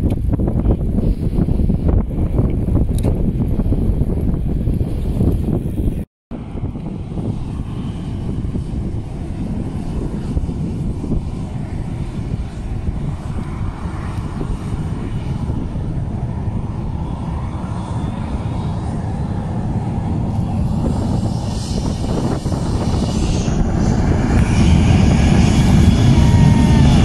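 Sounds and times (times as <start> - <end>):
jet engines rumbling: 0.0 - 27.0.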